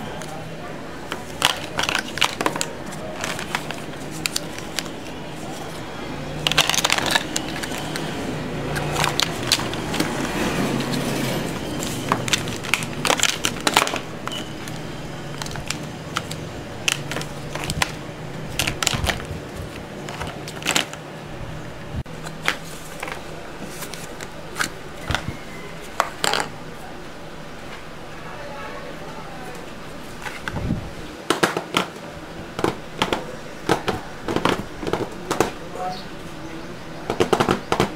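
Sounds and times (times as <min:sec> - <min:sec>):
plastic molds clicking and clattering: 0:01.1 - 0:05.8, 0:06.4 - 0:08.1, 0:08.7 - 0:11.1, 0:11.8 - 0:21.0, 0:26.0 - 0:26.6, 0:31.3 - 0:35.6, 0:37.1 - 0:37.9.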